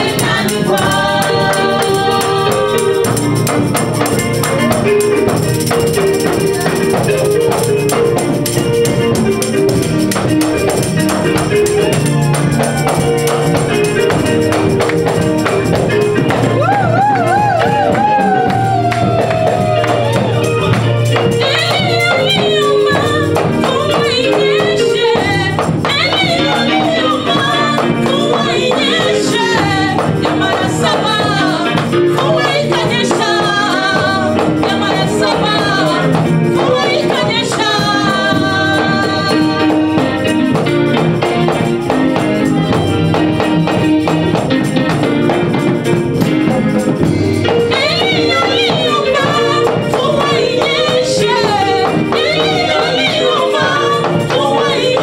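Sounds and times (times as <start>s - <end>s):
person singing with vibrato: 0.0s - 7.8s, 16.1s - 40.6s, 47.1s - 55.0s
sustained bass and keyboard: 0.0s - 55.0s.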